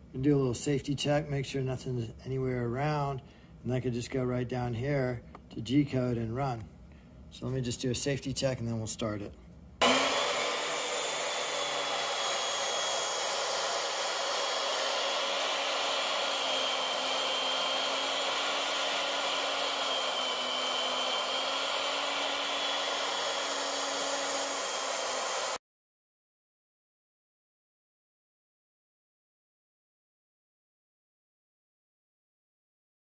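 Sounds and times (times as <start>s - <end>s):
bit cutting into wood: 9.8s - 25.6s
router spindle whirring: 9.8s - 25.6s.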